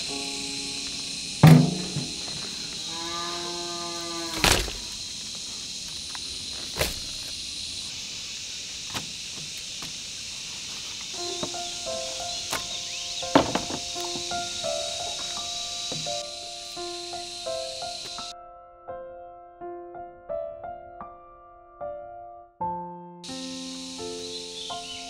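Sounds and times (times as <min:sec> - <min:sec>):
objects knocking on wooden table: 0:13.3 - 0:13.8.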